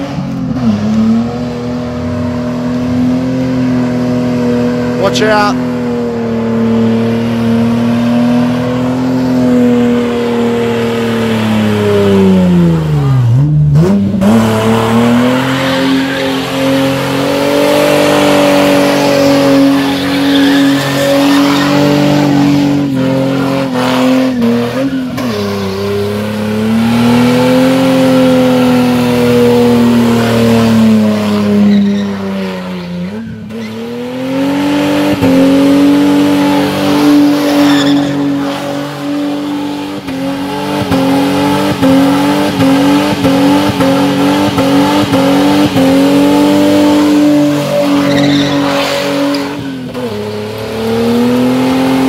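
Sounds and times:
car engine revving high: 0:00.0 - 0:52.0
tyres spinning and squealing: 0:12.6 - 0:50.3.

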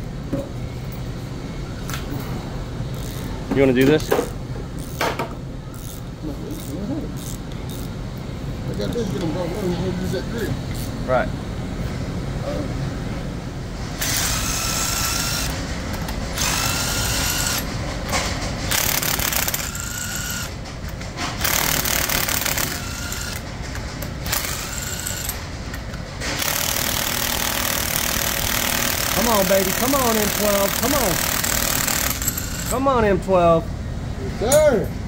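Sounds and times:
cordless tool whining: 0:14.0 - 0:17.7, 0:18.7 - 0:20.6, 0:21.4 - 0:23.5, 0:24.2 - 0:25.4, 0:26.4 - 0:32.8.

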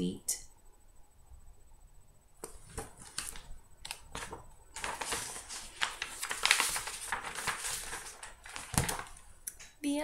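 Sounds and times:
book clicks and taps: 0:02.4 - 0:04.4
pages rustling: 0:02.4 - 0:09.5.

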